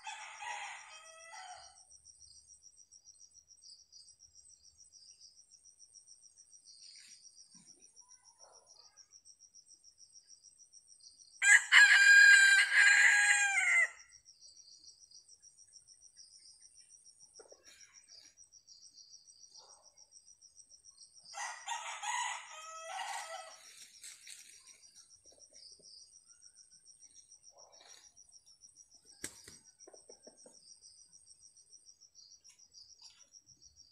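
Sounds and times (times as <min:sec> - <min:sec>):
rooster crowing: 0:00.0 - 0:01.8, 0:11.4 - 0:14.0, 0:21.3 - 0:23.6
crickets chirring: 0:00.0 - 0:33.9.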